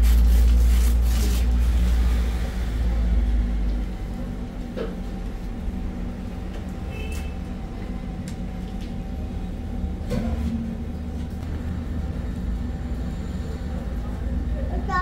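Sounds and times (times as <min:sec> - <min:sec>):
constant hum: 0:00.0 - 0:15.0
road vehicle rumbling: 0:00.0 - 0:15.0.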